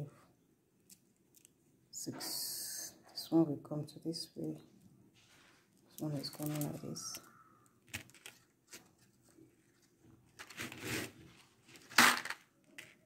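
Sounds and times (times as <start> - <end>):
beads clicking and rustling: 5.8 - 9.0, 11.7 - 13.0.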